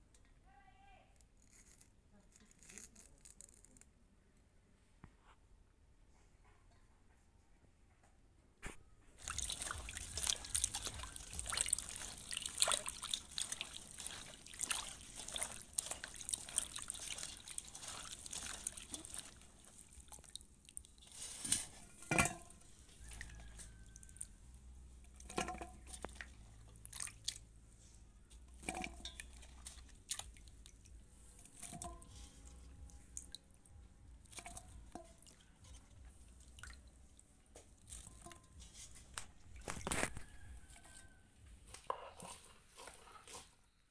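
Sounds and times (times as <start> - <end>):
water splashing in a steel bowl: 9.2 - 27.6, 28.3 - 43.6.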